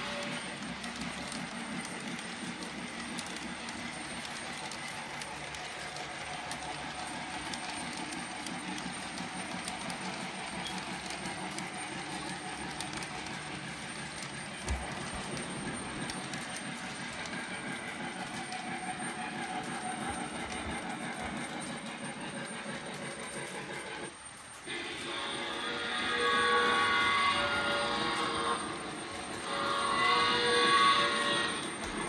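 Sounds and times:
model train cars rumbling: 0.0s - 32.0s.

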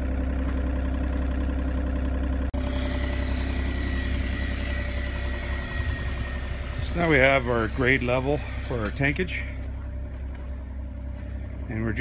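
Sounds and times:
diesel engine running: 0.0s - 12.0s
thin high whine: 2.6s - 9.2s.

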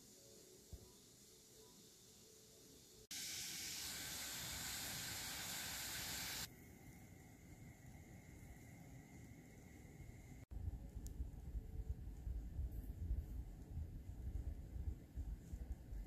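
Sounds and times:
quiet hiss of boiling water: 0.0s - 16.0s
water boiling loudly in saucepan: 3.1s - 6.5s
faint low hum: 6.5s - 16.0s.

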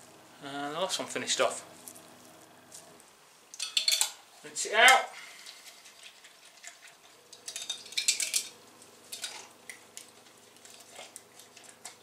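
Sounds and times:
faint steady hum: 0.0s - 12.0s
metal cans clinking: 3.5s - 4.2s, 7.3s - 9.8s.

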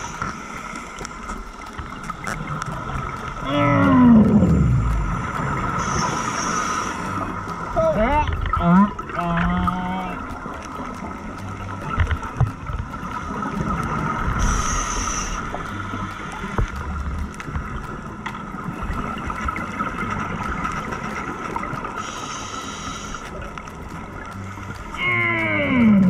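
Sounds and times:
underwater bubbling: 0.0s - 26.0s
steady high hum: 2.8s - 20.4s
diver inhaling through regulator: 5.8s - 7.2s, 14.4s - 15.5s, 22.0s - 23.3s.

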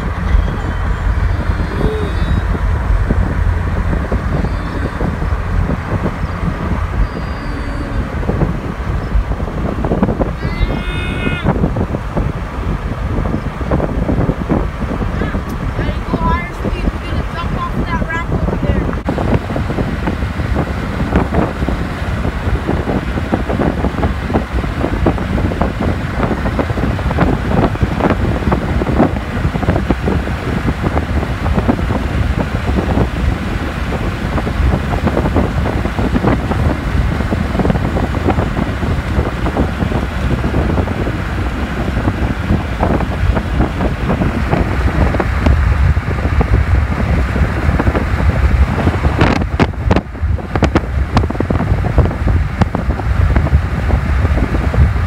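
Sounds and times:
car road noise: 0.0s - 55.0s
wind buffeting microphone: 0.0s - 55.0s.

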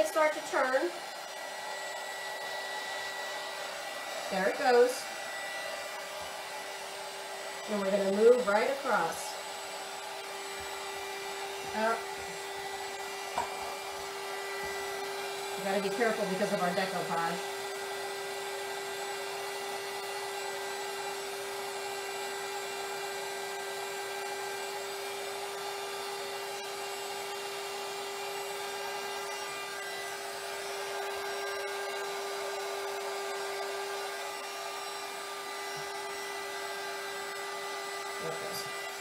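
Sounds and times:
heat gun fan humming: 0.0s - 39.0s.

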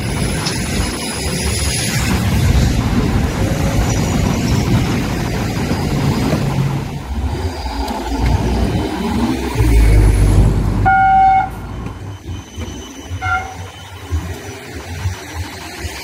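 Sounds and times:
tram arriving with low rumble: 0.0s - 16.0s
tram horn toots: 9.6s - 14.4s.

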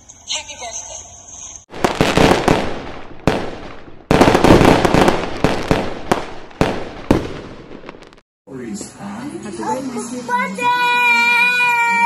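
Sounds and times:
fireworks cracking and crackling: 1.6s - 8.2s.

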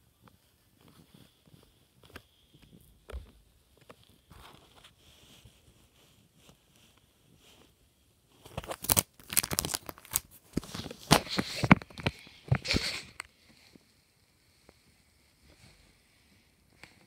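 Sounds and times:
plastic binder rustling and crinkling: 0.2s - 13.8s.

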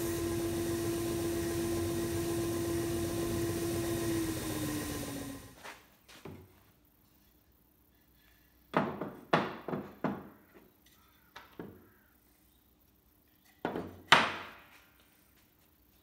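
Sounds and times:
wood pieces knocking on wooden bench: 8.7s - 10.7s, 13.6s - 14.6s.

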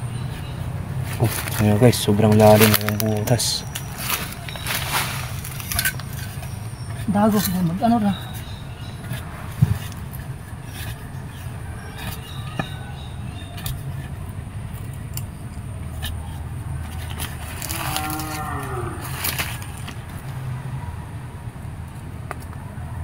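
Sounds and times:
metal tool digging soil: 0.1s - 20.0s
cow mooing: 17.6s - 19.2s.

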